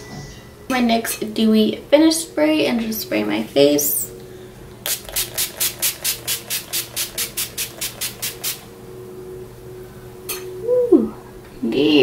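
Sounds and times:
spray bottle hissing: 4.8s - 8.6s.

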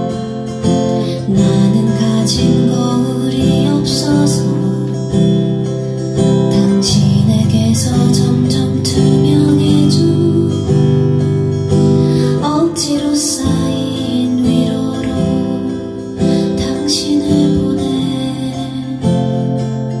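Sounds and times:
acoustic guitar strummed slowly: 0.0s - 20.0s.

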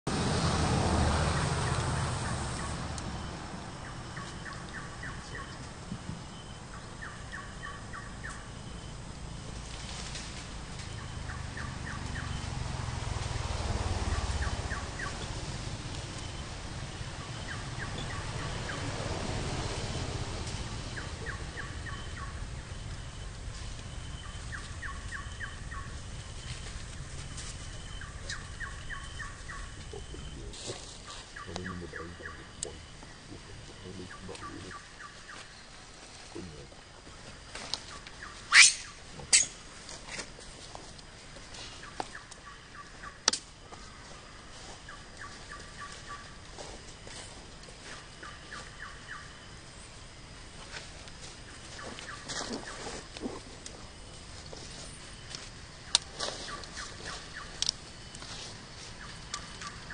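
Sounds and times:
low rumble: 8.4s - 34.6s
bird trilling call: 38.2s - 39.6s.

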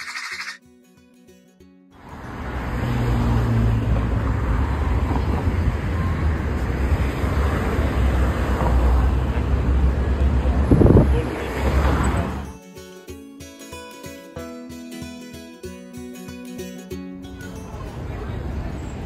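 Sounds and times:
road traffic rumble: 2.0s - 12.5s, 16.8s - 19.0s.

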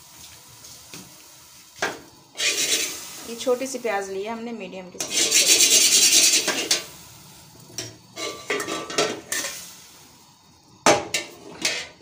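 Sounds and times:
spoon scraping metal pot: 2.4s - 3.0s, 5.0s - 6.9s, 8.1s - 9.6s.

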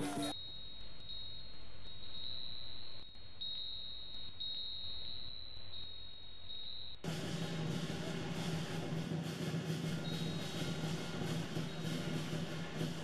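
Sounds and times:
drums and percussion: 0.0s - 0.4s, 7.0s - 13.0s.

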